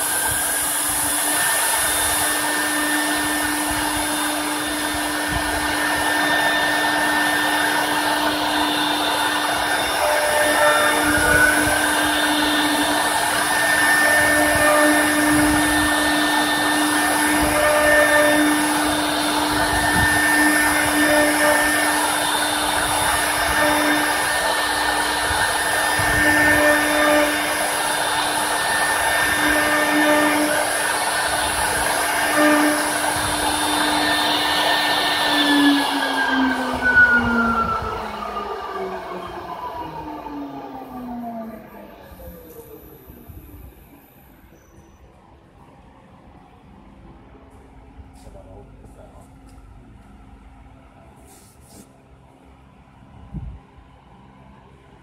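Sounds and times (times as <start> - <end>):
higher cutting tones: 0.0 - 44.0
router spindles whining: 0.0 - 44.6.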